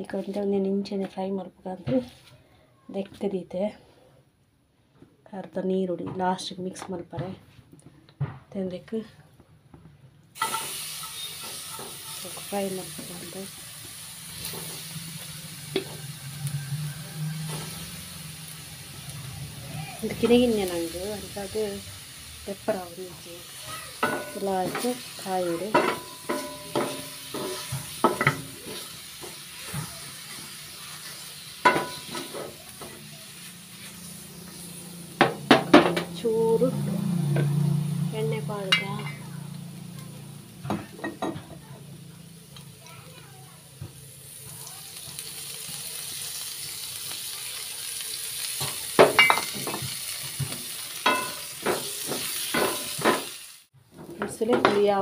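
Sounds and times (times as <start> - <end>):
fish sizzling in oil: 10.4 - 53.8
spatula scraping pan: 14.3 - 18.2, 22.5 - 38.0, 48.5 - 55.0.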